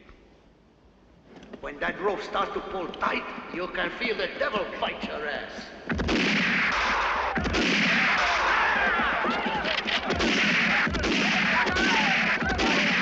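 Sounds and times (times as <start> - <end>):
echoing gunshots: 5.9 - 13.0.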